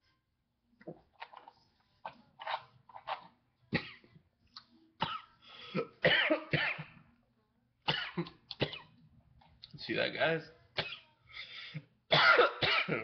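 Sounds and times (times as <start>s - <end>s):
man coughing: 12.1s - 13.0s.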